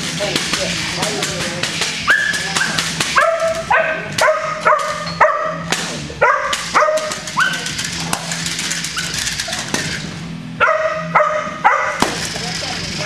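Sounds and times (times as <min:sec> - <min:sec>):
puppy yipping: 0:02.1 - 0:05.6, 0:06.2 - 0:07.8.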